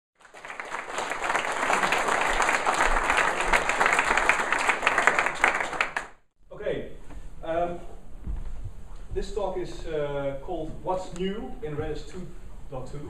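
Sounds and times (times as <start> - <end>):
audience applauding: 0.2 - 6.2.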